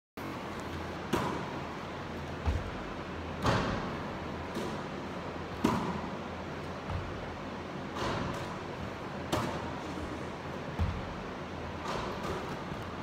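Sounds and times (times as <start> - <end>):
ball hitting rim: 3.4 - 6.2, 10.8 - 11.2
basketball bouncing on hardwood floor: 6.8 - 7.3, 10.8 - 11.2.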